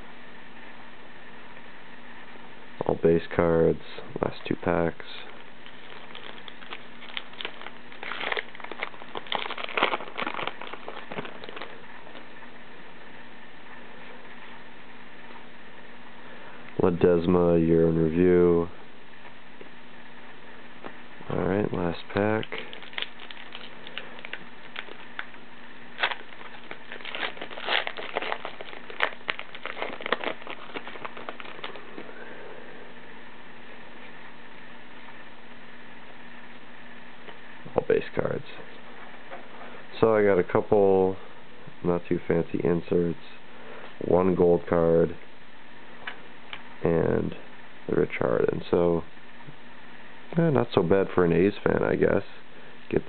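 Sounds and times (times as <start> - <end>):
foil wrapper crinkling: 5.4 - 12.3, 22.1 - 25.4, 26.0 - 32.4.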